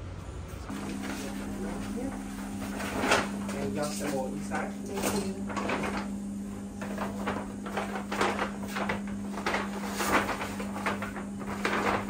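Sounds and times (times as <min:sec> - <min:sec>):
steady low hum: 0:00.0 - 0:12.0
paper bag crinkling: 0:00.7 - 0:12.0.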